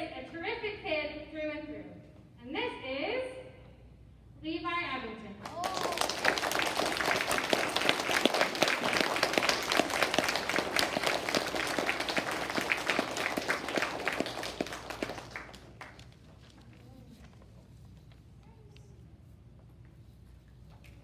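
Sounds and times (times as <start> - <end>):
children clapping: 5.4 - 16.5.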